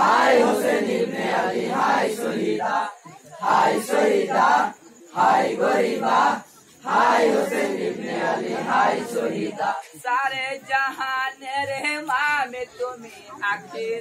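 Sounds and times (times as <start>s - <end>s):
men chanting together: 0.0s - 9.8s.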